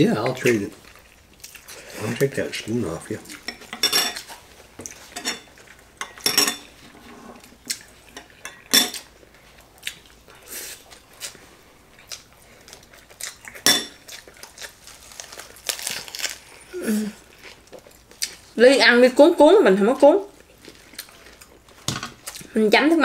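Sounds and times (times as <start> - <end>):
utensils clinking on ceramic plates: 3.4 - 4.3, 5.1 - 7.4, 8.1 - 9.1, 13.6 - 14.0.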